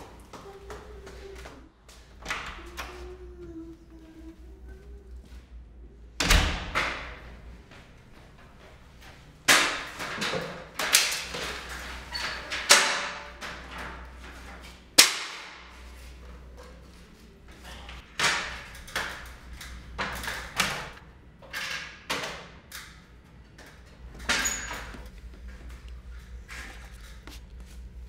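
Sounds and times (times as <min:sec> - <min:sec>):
metal stepladder knocks and clanks: 0:09.5 - 0:14.0.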